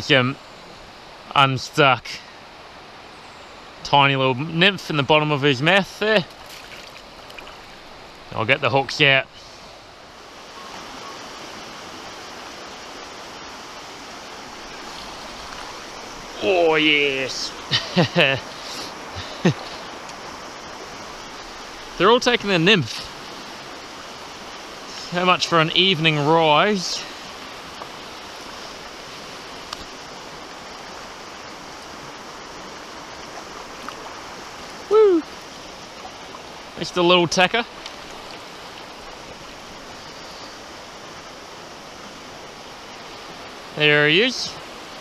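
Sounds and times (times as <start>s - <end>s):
river water flowing: 0.0s - 45.0s
faint click: 29.7s - 29.9s.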